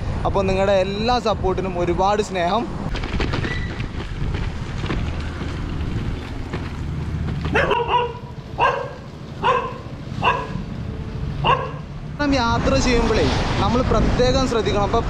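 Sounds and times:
road and wind rumble: 0.0 - 15.0
dog barking: 7.5 - 10.7, 11.4 - 11.9.

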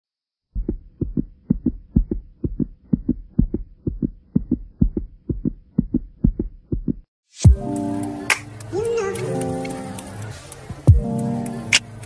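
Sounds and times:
racing heartbeat: 0.5 - 7.7, 10.7 - 11.1.

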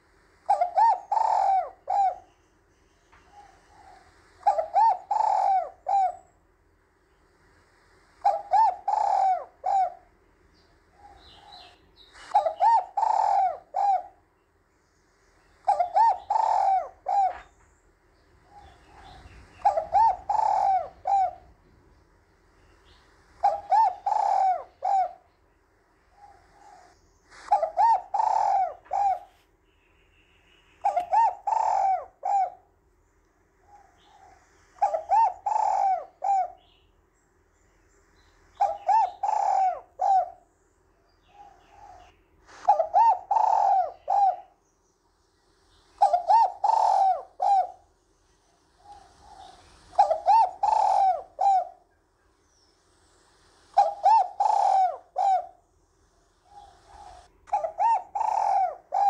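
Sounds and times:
dove cooing: 0.0 - 2.4, 3.1 - 6.4, 8.2 - 14.3, 15.3 - 17.7, 18.3 - 21.9, 22.6 - 25.3, 26.1 - 29.5, 30.8 - 32.8, 33.6 - 36.8, 38.5 - 40.5, 41.2 - 44.7, 45.9 - 52.0, 53.4 - 59.0.

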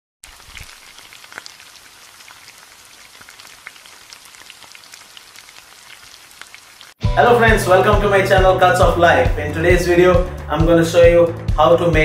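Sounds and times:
small crackles and pops: 0.2 - 7.0.

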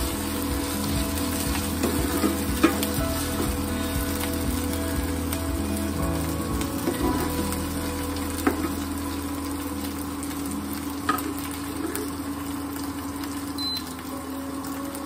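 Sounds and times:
onion sizzling in oil: 0.0 - 15.0.

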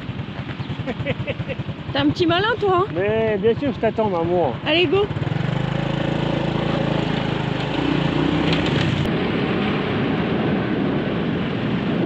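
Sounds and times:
motorbike engine running: 0.0 - 9.2
wind rushing over microphone: 0.0 - 12.0.

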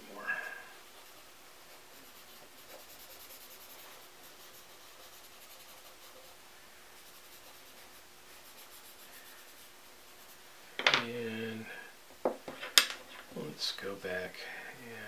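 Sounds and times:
scratchy rubbing on paper: 0.9 - 6.4, 7.0 - 10.4.

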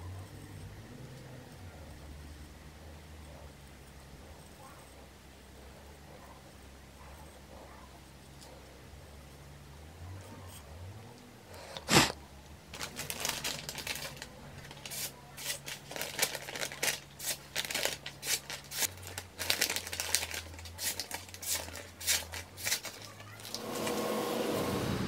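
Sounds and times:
paper rustling: 11.9 - 24.0
cleaver slicing paper: 12.8 - 24.6.

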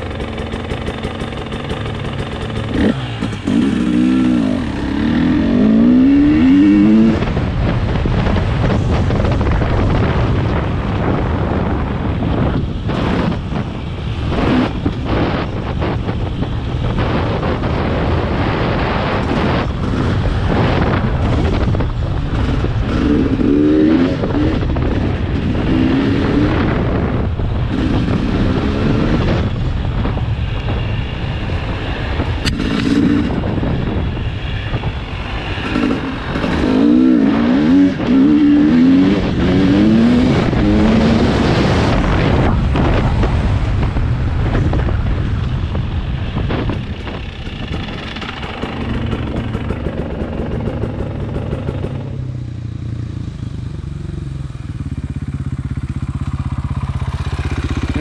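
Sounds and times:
small engine revving: 0.0 - 7.4
wind noise on microphone: 0.0 - 58.0.

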